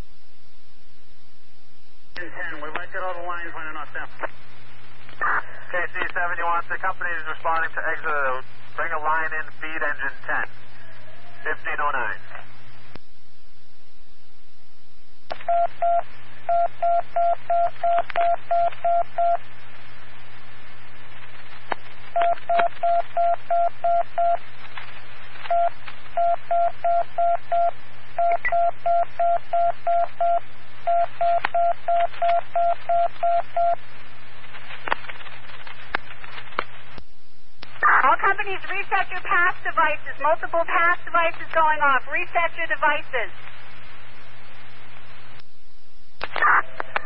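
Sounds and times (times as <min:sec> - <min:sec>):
radio hiss and hum: 0:02.1 - 0:13.1, 0:13.7 - 0:28.6, 0:30.0 - 0:47.0
radio squelch clicks: 0:05.9 - 0:06.3, 0:46.2 - 0:47.0.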